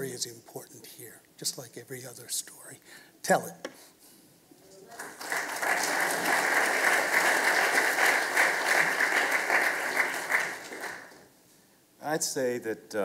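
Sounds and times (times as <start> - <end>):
audience applauding: 4.9 - 11.2.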